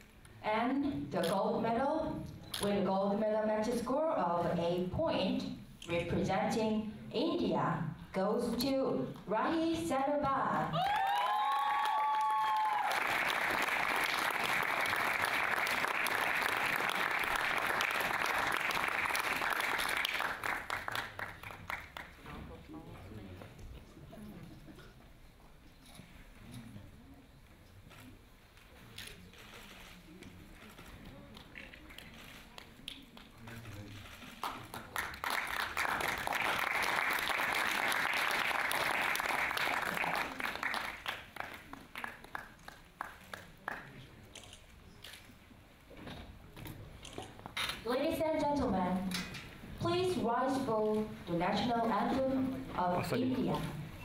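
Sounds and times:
audience applauding: 10.8 - 22.2, 34.4 - 44.0.

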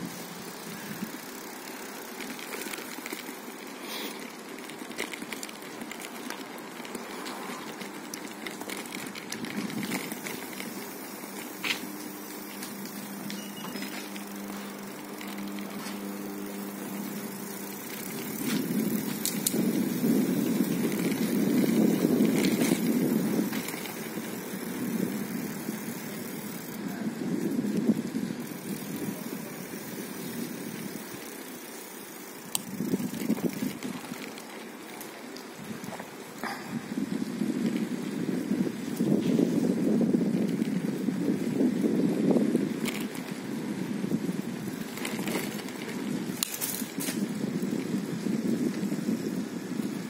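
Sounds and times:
car engine hum: 4.3 - 26.8.

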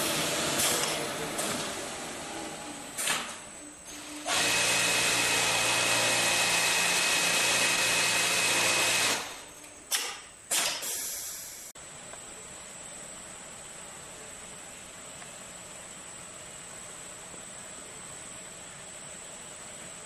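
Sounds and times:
faint high whine: 11.1 - 20.0.

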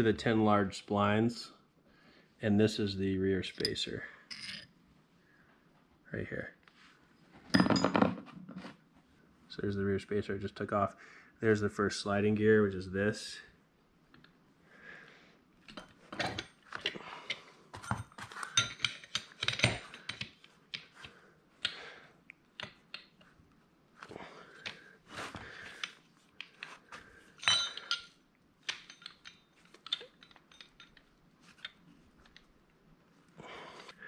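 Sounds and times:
steel gear parts clinking: 3.4 - 4.7, 27.4 - 31.8.

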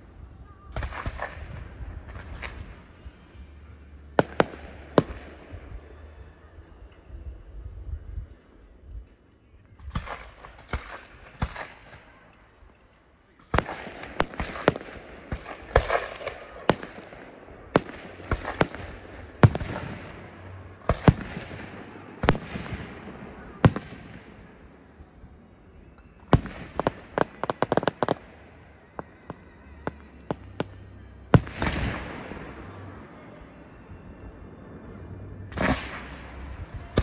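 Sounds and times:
fireworks bangs and cracks: 4.2 - 5.5, 13.4 - 24.5, 26.2 - 28.3, 29.3 - 33.5.

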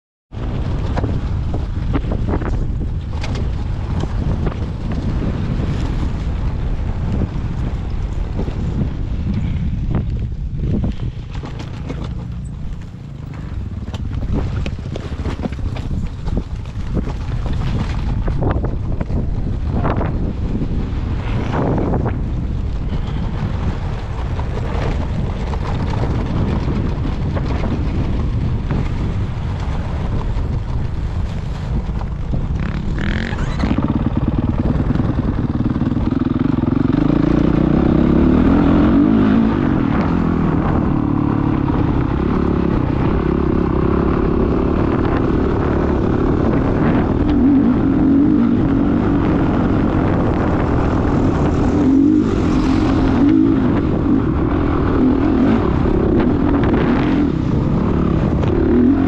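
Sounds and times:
wind buffeting microphone: 0.3 - 59.0
dirt bike engine revving: 32.6 - 59.0.

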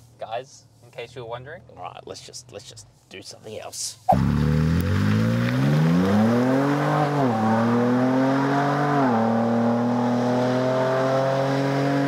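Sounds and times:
car engine accelerating: 4.1 - 12.0.

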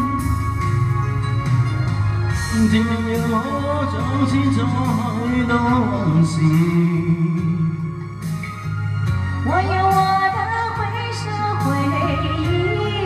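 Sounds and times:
pop ballad backing track: 0.0 - 13.0
man singing into microphone: 2.5 - 8.1.

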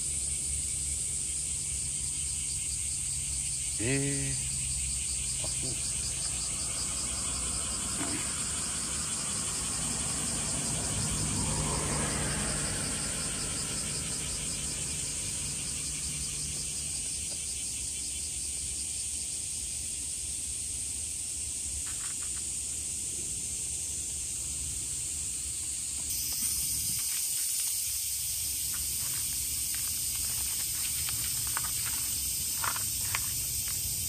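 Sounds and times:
insects chirping: 0.0 - 34.0.

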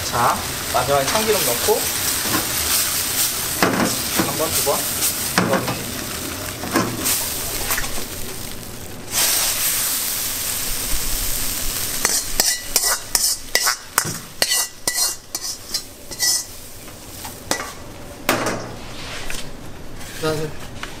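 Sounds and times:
sauce sizzling in a wok: 0.0 - 17.8
metal ladle scraping a wok: 12.0 - 13.8, 14.4 - 16.6.

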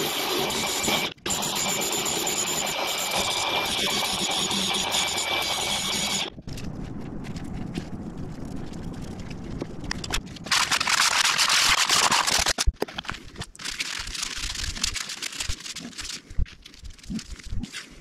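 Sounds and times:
sandpaper rubbing on wood: 10.5 - 12.6.

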